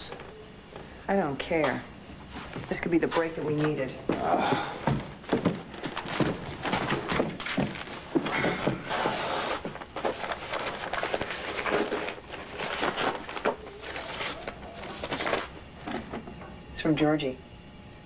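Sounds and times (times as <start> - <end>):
crickets chirping: 0.0 - 18.0
footsteps and shuffling: 2.0 - 16.4
paper rustling: 4.9 - 16.3.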